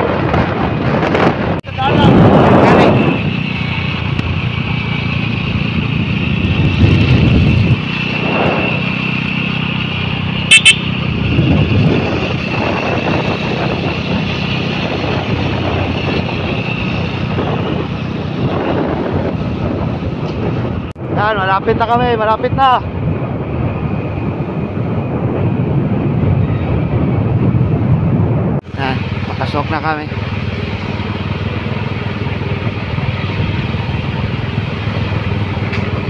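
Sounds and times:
motorcycle engines running: 0.0s - 36.0s
double horn beep: 10.4s - 11.1s.

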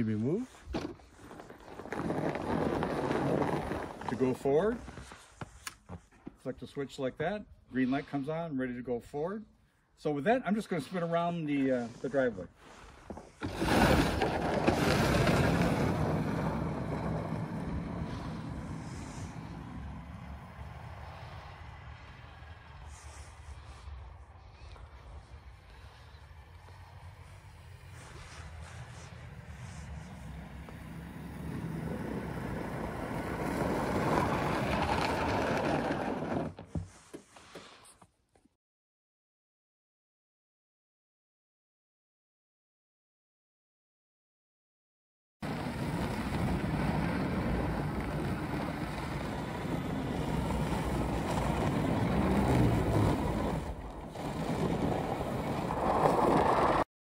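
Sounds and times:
tyres rushing on packed snow: 0.2s - 5.5s, 11.8s - 21.5s, 25.0s - 36.6s, 45.4s - 56.8s.

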